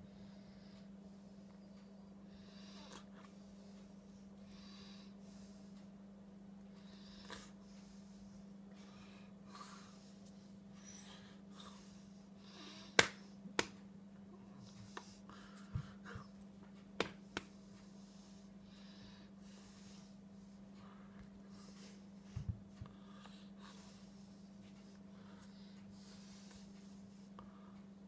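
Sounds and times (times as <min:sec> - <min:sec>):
soft breaths: 0:00.0 - 0:28.0
steady low hum: 0:00.0 - 0:28.0
hands slapping and clapping: 0:13.0 - 0:13.8, 0:17.0 - 0:17.5.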